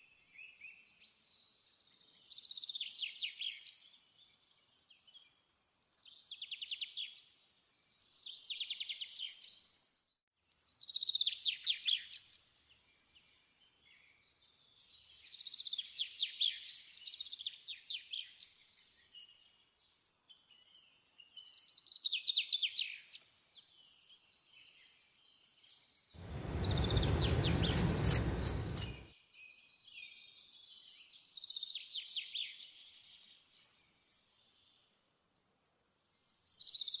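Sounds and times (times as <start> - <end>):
birds singing: 23.7 - 33.1.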